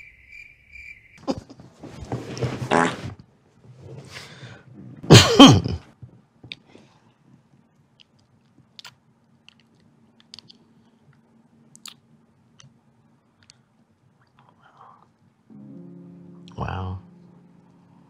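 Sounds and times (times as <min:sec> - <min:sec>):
wet lip smacks and clicks: 0:08.0 - 0:12.0, 0:12.6 - 0:12.8, 0:13.4 - 0:13.6.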